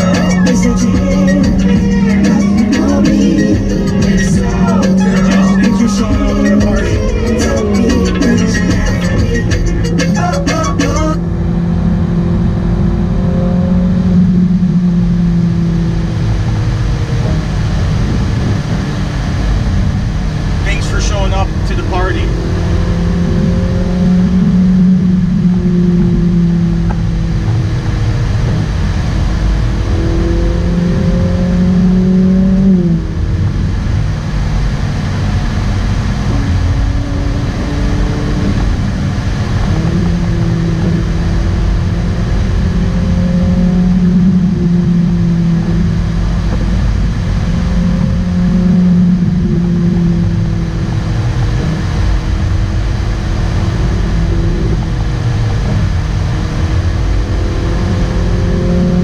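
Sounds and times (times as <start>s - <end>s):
car engine cruising: 0.0s - 59.0s
road and tyre rumble: 0.0s - 59.0s.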